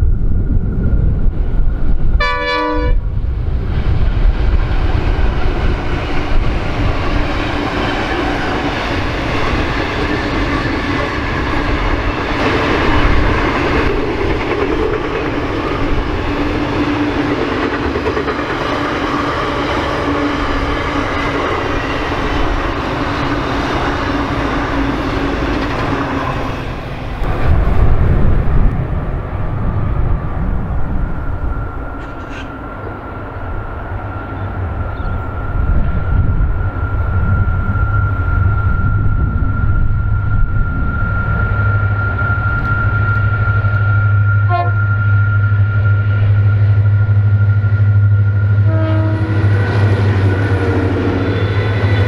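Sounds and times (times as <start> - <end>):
train wagons rolling on rails: 0.0 - 52.0
low rumble: 26.0 - 31.9
short pitched tone: 36.8 - 49.3.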